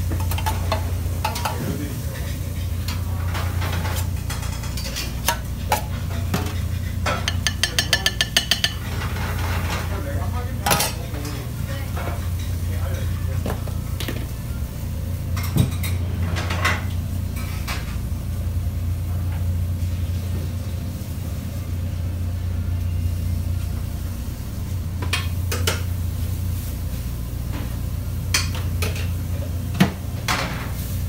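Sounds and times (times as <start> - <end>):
dishes and utensils clinking: 0.0 - 9.9
kitchen equipment hum: 0.0 - 31.0.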